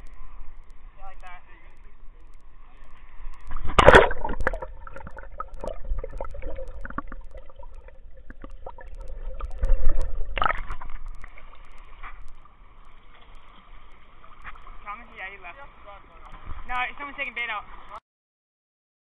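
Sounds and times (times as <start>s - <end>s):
muffled underwater gurgling: 0.0s - 18.0s
loud water splash: 3.6s - 7.5s.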